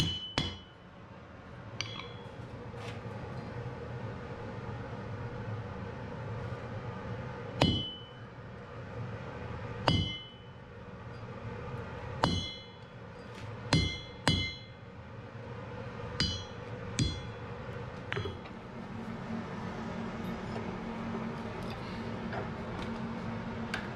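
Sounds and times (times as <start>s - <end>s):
hammer striking metal on anvil: 0.0s - 0.8s, 1.8s - 2.4s, 7.6s - 8.3s, 9.8s - 10.6s, 12.2s - 13.0s, 13.7s - 14.9s, 16.2s - 17.5s.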